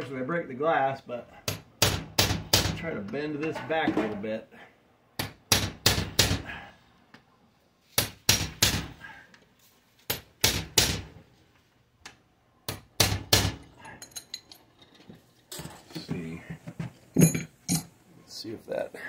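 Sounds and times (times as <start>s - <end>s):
light metal clinks: 13.8s - 14.7s.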